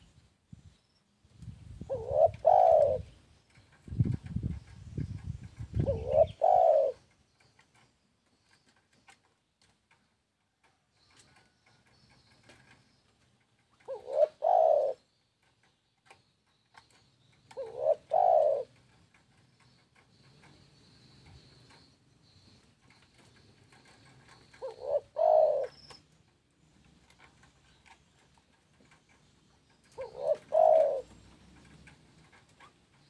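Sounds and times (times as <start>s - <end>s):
dove cooing: 1.8s - 3.2s, 5.1s - 7.8s, 13.7s - 15.5s, 16.8s - 21.9s, 22.9s - 26.0s, 28.8s - 33.0s.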